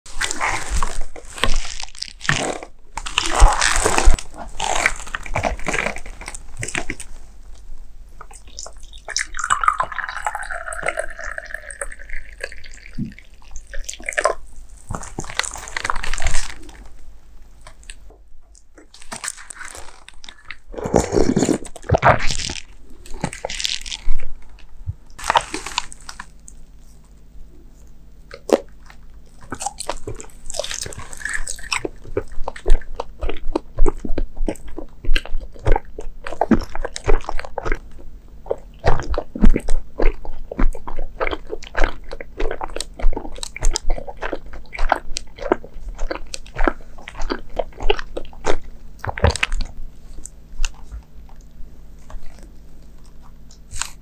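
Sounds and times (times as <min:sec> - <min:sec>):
liquid pouring into cup: 0:09.2 - 0:13.3
handling noises: 0:17.6 - 0:26.5.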